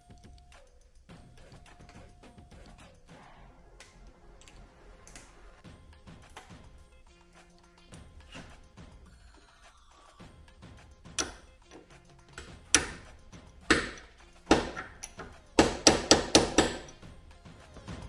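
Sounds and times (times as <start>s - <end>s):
hammer striking steel punch: 11.0s - 17.0s.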